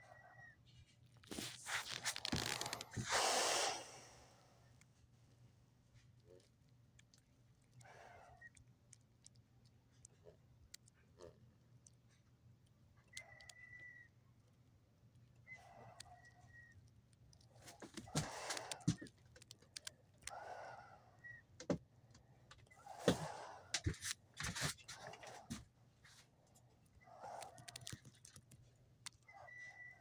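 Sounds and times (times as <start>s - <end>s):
objects being handled: 0.7s - 3.2s.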